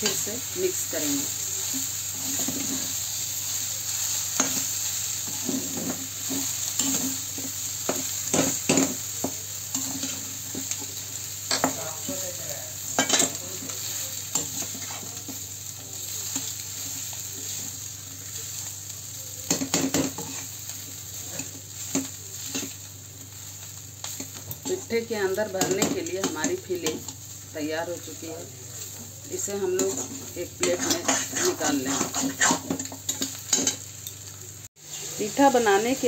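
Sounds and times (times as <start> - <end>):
frying hiss: 0.0 - 36.0
metal spatula scraping a pan: 2.1 - 3.2, 12.9 - 15.3, 28.8 - 34.2.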